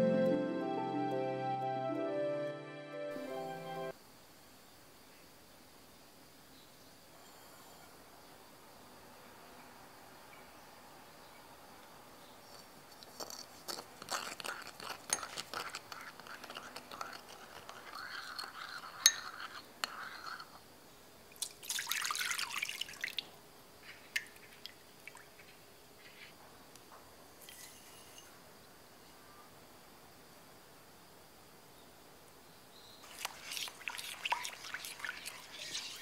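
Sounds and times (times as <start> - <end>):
teaspoon scraping and clinking dish: 12.5 - 20.6, 27.4 - 28.3, 33.0 - 36.0
milk pouring into glass bowl: 13.2 - 20.6, 21.4 - 23.3, 33.0 - 36.0.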